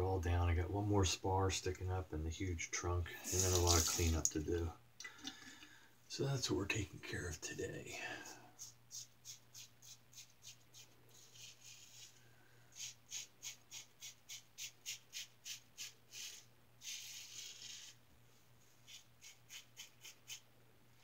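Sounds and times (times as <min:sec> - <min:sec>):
razor shaving stubble: 0:03.3 - 0:04.2, 0:12.8 - 0:18.0, 0:18.8 - 0:20.4.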